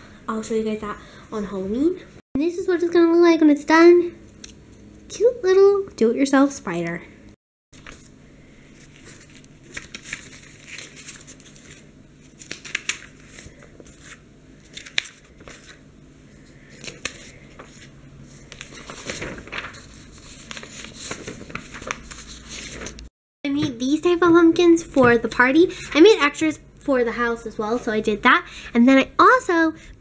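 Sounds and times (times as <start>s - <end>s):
paper rustling and crinkling: 7.8s - 15.8s, 16.4s - 23.1s.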